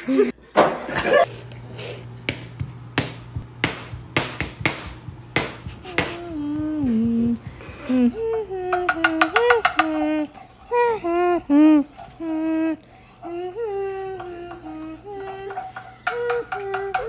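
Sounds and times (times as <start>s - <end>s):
knife chopping on plastic board: 2.3s - 6.2s
person humming: 5.0s - 17.0s.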